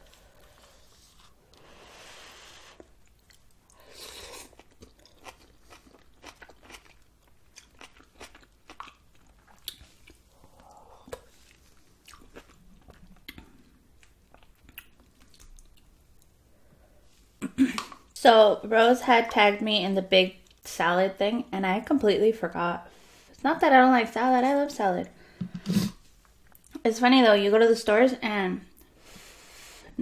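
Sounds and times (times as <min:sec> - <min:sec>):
chewing noodle soup: 0:02.7 - 0:16.4.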